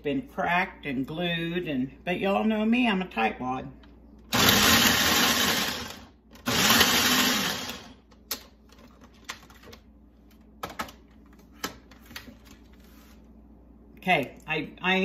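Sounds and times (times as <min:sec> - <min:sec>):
food processor chopping: 0:04.3 - 0:08.0.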